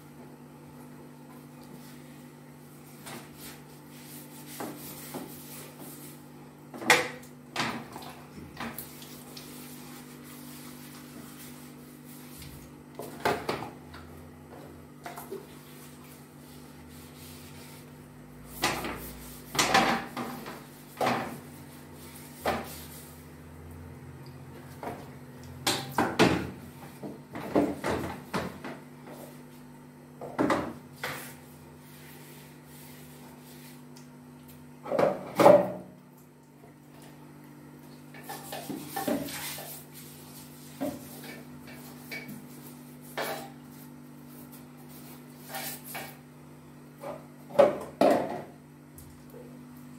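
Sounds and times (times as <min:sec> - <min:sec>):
toilet brush scrubbing bowl: 0:01.7 - 0:06.4, 0:07.8 - 0:13.6, 0:15.1 - 0:23.4, 0:31.0 - 0:33.9, 0:38.1 - 0:46.2.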